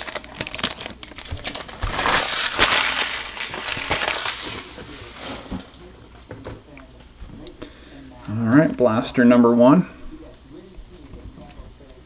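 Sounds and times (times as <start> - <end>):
packaging rustling and clicking: 0.0 - 5.7
foil crinkling and tearing: 0.0 - 5.8.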